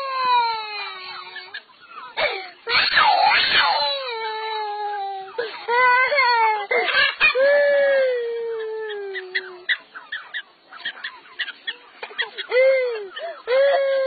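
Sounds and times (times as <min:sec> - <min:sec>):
young child crying: 0:02.2 - 0:09.6, 0:12.4 - 0:14.0.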